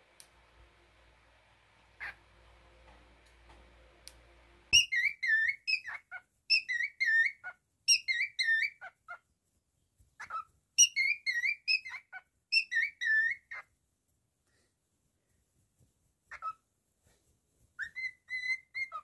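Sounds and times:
cockatiel whistling: 4.7s - 8.9s, 10.2s - 13.6s, 17.8s - 19.0s.

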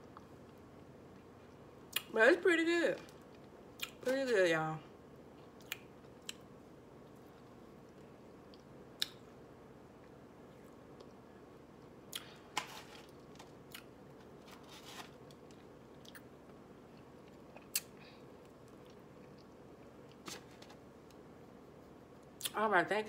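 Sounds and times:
faint steady hum: 0.0s - 23.0s
chewing clicks and smacks: 5.4s - 6.4s.

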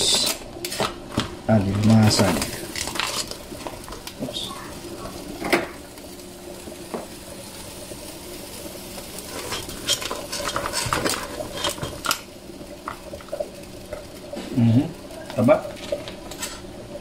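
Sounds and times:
metal utensils clinking on pot: 9.3s - 12.2s, 15.8s - 16.7s.

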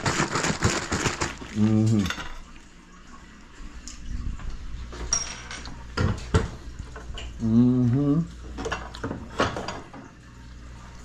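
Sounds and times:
dishes clinking and knocking: 5.0s - 7.3s, 8.6s - 10.1s.

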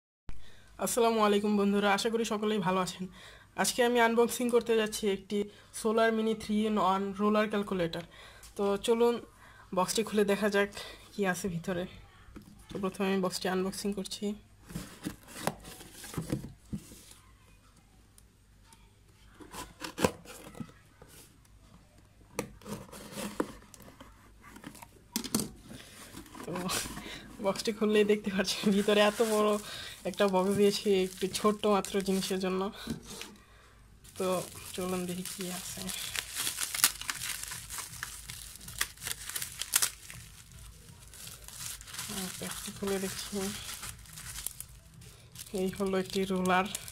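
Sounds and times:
cardboard crinkling and rustling: 14.6s - 17.2s, 22.6s - 24.9s, 25.6s - 33.4s, 34.0s - 46.9s
packing tape tearing: 34.1s - 46.9s.

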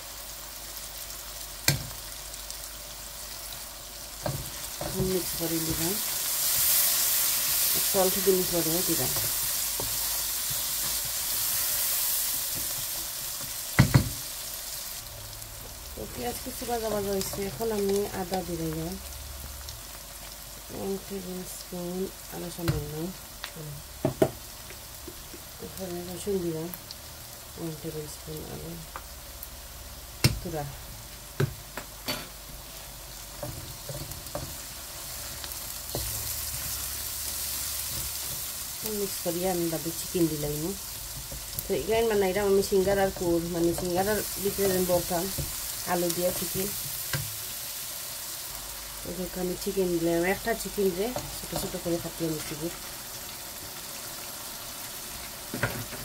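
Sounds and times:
onions sizzling in hot oil: 0.0s - 56.0s
wooden spatula knocking on pan: 13.8s - 14.2s, 24.0s - 24.4s.

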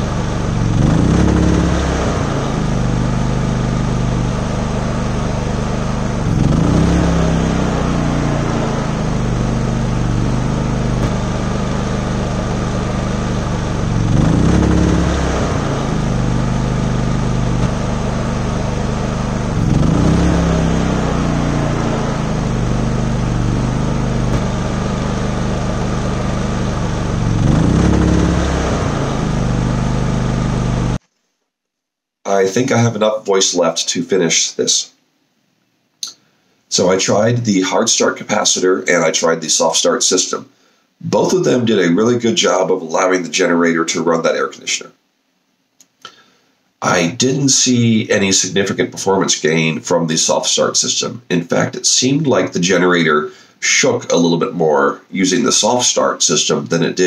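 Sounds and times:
generator engine running: 0.0s - 31.0s.

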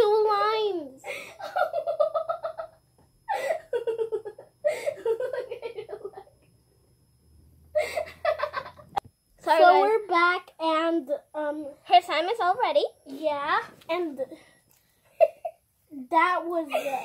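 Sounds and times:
girls laughing and giggling: 1.1s - 6.4s, 7.8s - 9.0s, 15.1s - 15.6s.

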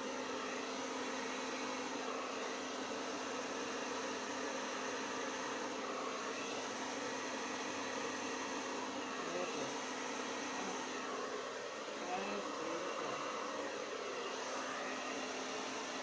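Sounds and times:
hair dryer running: 0.0s - 16.0s.

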